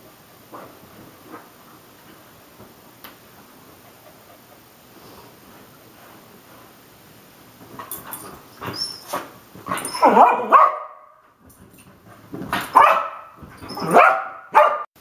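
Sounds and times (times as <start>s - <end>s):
dog barking: 10.0s - 11.2s, 12.7s - 14.9s.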